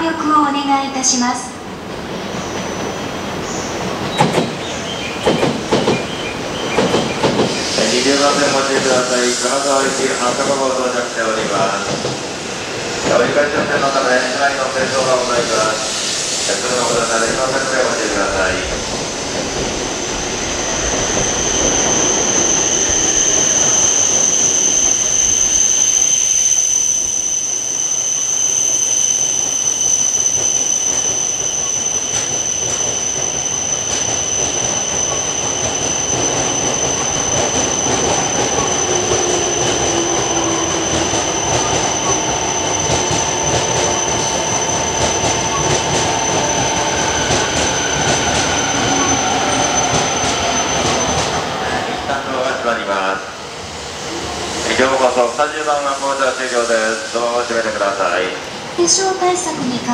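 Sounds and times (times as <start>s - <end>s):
train rumbling: 0.0s - 59.9s
high-pitched whine: 14.3s - 53.0s.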